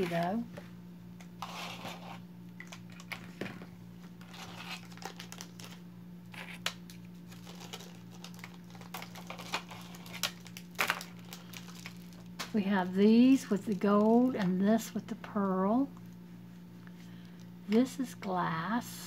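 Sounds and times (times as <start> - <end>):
steady low hum: 0.0 - 19.0
beaded bracelets rustling: 7.3 - 14.4.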